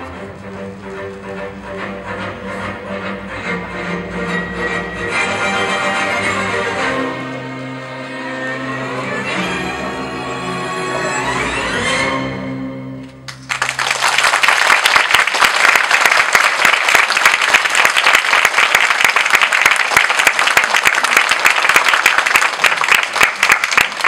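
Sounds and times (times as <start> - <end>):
music: 0.0 - 13.9
crowd applauding: 13.3 - 24.0.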